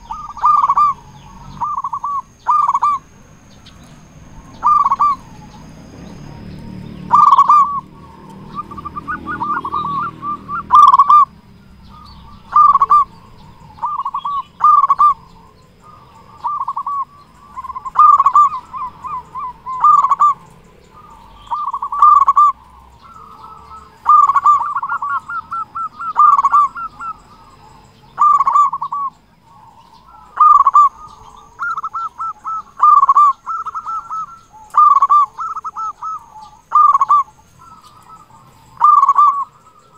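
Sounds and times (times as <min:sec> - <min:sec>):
rapid warbling bird notes: 0:00.0 - 0:05.7, 0:07.1 - 0:11.3, 0:11.9 - 0:27.5
dove cooing: 0:00.0 - 0:39.9.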